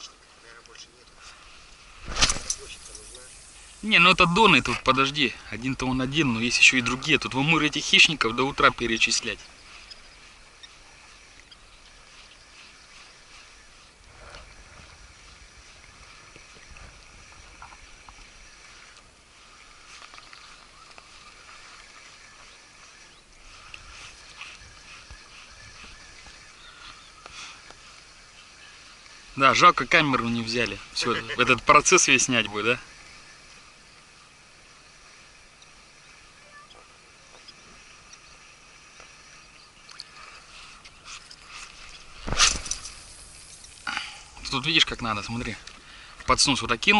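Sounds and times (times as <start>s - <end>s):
faint high hiss: 0.0s - 46.9s
high-pitched wildlife chirping: 2.4s - 38.4s, 39.0s - 44.6s
low wind rumble on microphone: 9.4s - 19.8s.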